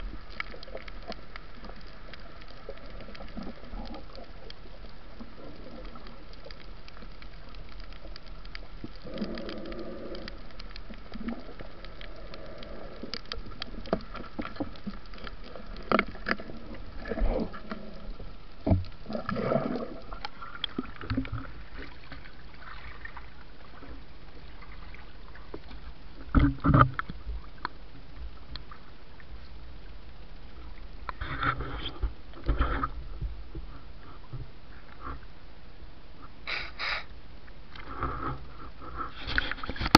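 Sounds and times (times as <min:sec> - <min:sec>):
water sloshing: 0:00.0 - 0:27.7
underwater clicks and crackles: 0:00.0 - 0:39.9.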